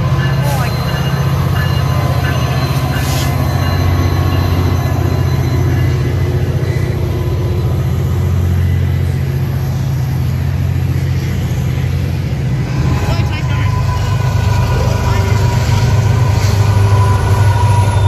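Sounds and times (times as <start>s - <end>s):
locomotive engine drone: 0.0s - 18.0s
train rolling by: 0.0s - 18.0s.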